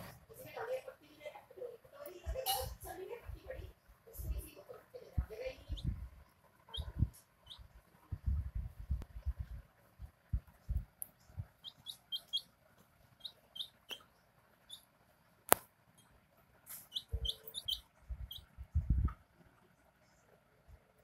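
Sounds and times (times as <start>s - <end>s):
chick peeping: 6.7s - 7.7s, 11.4s - 12.5s, 13.1s - 14.9s, 16.7s - 18.6s
low thuds: 8.1s - 11.5s.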